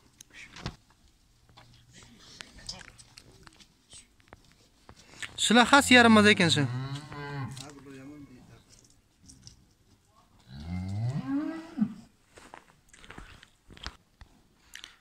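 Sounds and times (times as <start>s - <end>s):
cow mooing: 6.4s - 7.7s, 10.5s - 12.1s.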